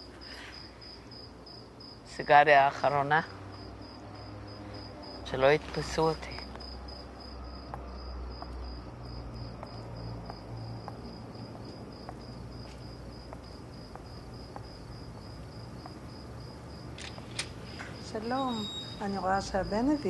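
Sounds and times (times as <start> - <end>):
crickets chirping: 0.0 - 20.0
soft footsteps: 3.4 - 18.1.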